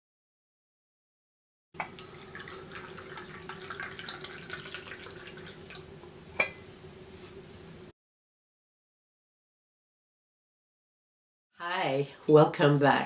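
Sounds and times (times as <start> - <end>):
teapot clinking on cup: 1.8 - 5.4, 6.4 - 6.6
tea pouring into a cup: 1.8 - 6.2
faint steady hum: 1.8 - 7.9.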